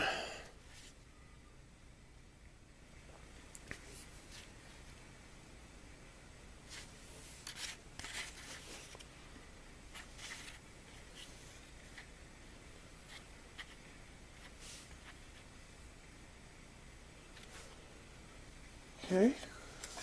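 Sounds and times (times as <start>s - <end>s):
catalogue pages rustling: 6.7s - 9.1s, 9.9s - 12.1s.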